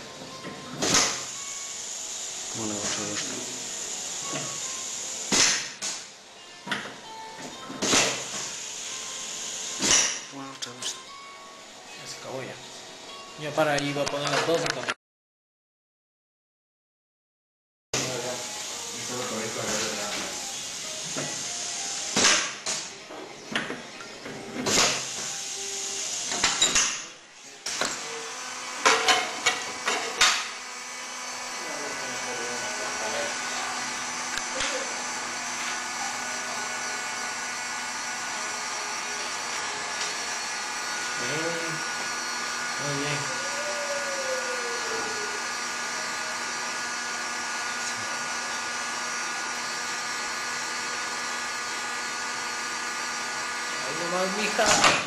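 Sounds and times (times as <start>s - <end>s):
pneumatic cylinders clacking: 6.7s - 8.7s, 9.7s - 10.3s, 19.8s - 28.0s
steady air hiss: 18.0s - 22.3s
machine whirring hum: 18.0s - 55.0s.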